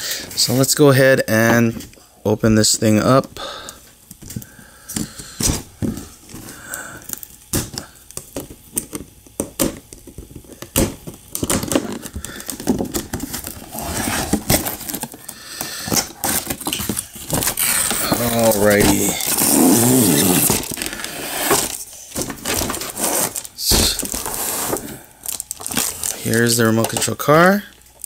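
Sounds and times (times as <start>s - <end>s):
plastic crackling: 4.1s - 28.0s
cardboard box rustling: 16.2s - 25.0s.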